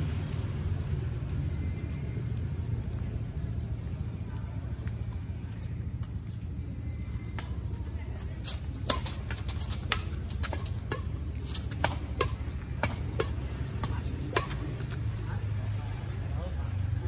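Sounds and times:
low city rumble: 0.0 - 17.0
rackets hitting shuttlecock: 8.4 - 15.1.

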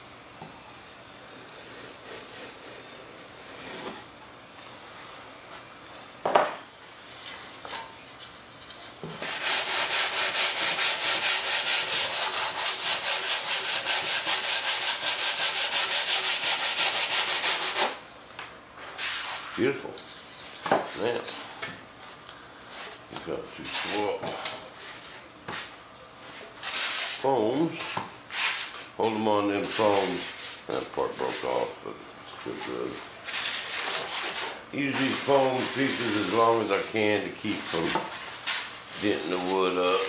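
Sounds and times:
sanding block rubbing wood: 9.2 - 18.0, 29.6 - 31.7, 32.7 - 40.0.

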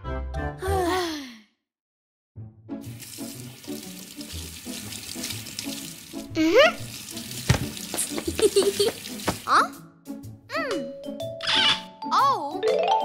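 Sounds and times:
light background music: 2.6 - 13.0
tap water running into sink: 2.8 - 9.6.

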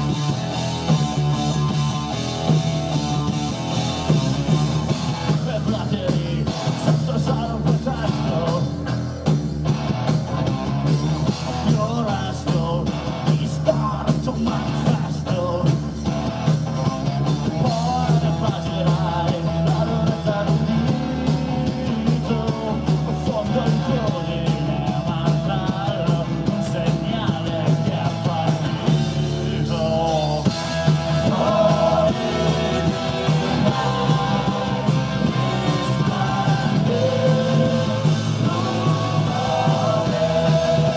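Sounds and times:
rock band playing live: 0.0 - 40.9
man singing: 5.3 - 8.9, 11.5 - 15.8, 17.6 - 40.9.

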